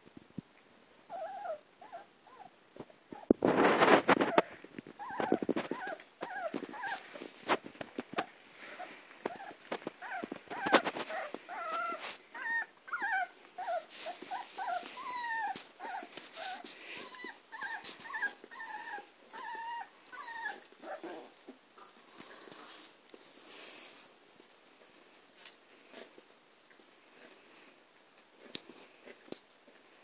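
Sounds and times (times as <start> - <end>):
puppies whining and yipping: 1.1 - 2.5, 4.2 - 7.3, 8.2 - 21.4.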